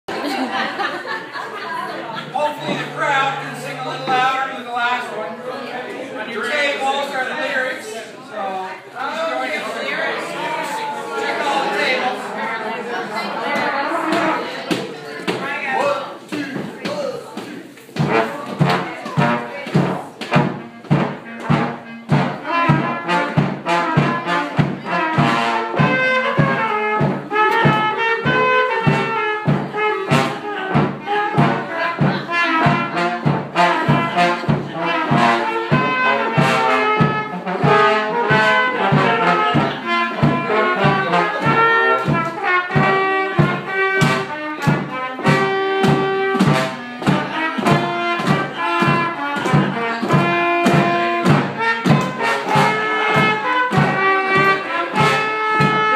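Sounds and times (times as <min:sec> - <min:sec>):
bass drum beat: 0:02.4 - 0:04.4, 0:17.9 - 0:55.9
trumpet: 0:02.4 - 0:05.6, 0:13.3 - 0:14.7, 0:18.0 - 0:55.9
trombone: 0:18.0 - 0:55.9
clarinet: 0:20.3 - 0:55.9.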